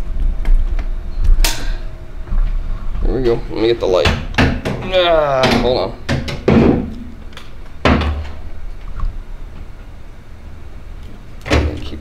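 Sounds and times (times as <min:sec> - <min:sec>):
background hum: 0:00.0 - 0:12.0
equipment knocking and clunking: 0:05.4 - 0:07.1.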